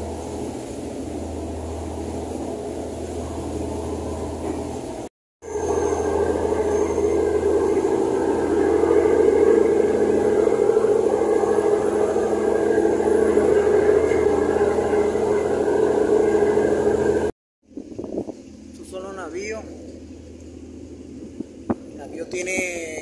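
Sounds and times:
ferry engines droning: 0.0s - 17.3s.

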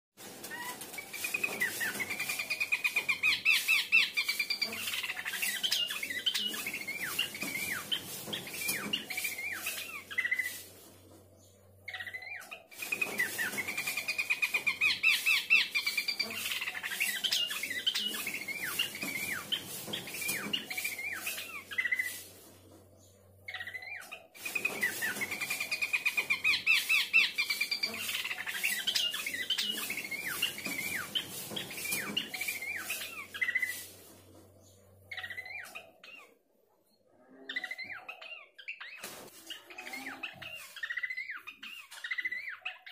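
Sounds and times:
babbler birdsong trill: 35.0s - 36.4s.

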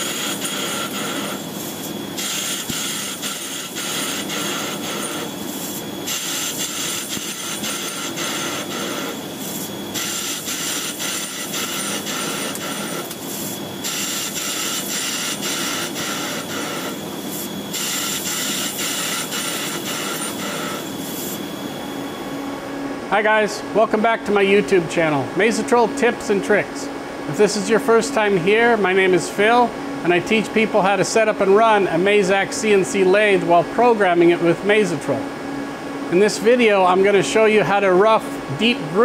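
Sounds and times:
cutting tool hissing and whistling: 0.0s - 22.2s
lathe spindle humming: 0.0s - 34.7s.

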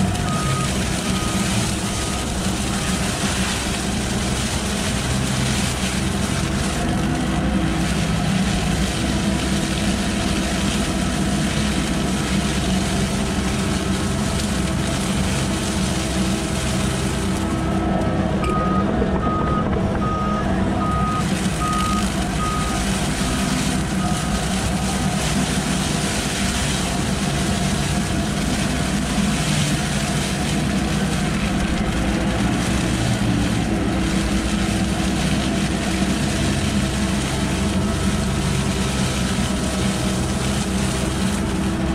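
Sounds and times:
diesel engine running: 0.0s - 41.9s
mower head cutting grass: 0.0s - 41.9s
high warning beeps: 18.4s - 22.8s.

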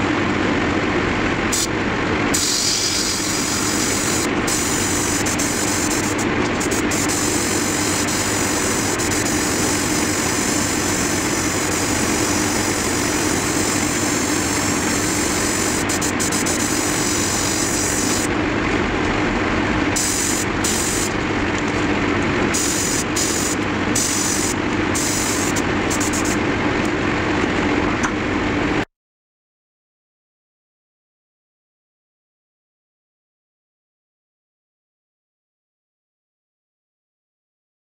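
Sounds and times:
compressor humming: 0.0s - 28.9s
airbrush hissing: 2.3s - 18.3s, 20.0s - 21.2s, 22.5s - 26.4s.

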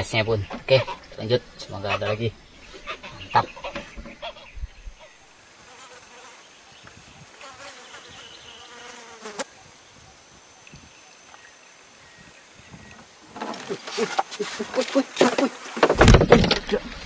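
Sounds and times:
flying insect buzzing: 5.4s - 10.2s, 11.8s - 16.0s.

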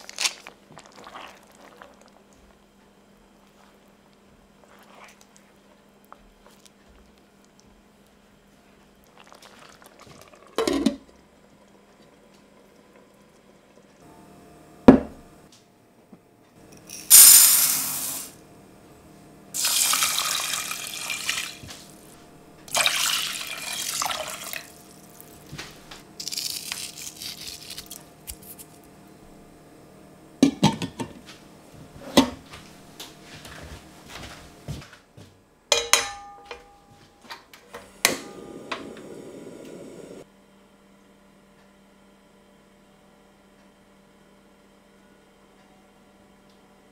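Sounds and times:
water pouring onto rice: 19.6s - 21.5s
kitchenware knocking: 35.7s - 36.9s
metallic clank and ring: 35.7s - 37.1s.

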